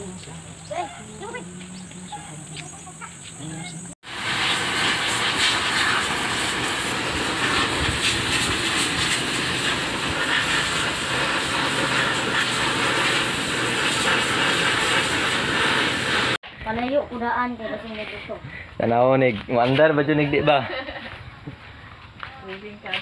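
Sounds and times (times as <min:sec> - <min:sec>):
pressure washer jet spraying: 0:04.0 - 0:16.4.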